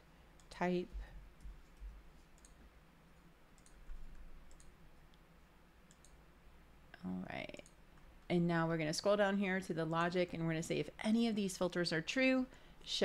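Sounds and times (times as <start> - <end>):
computer mouse and keyboard clicks: 1.4 - 2.6, 3.2 - 4.8, 5.9 - 6.2.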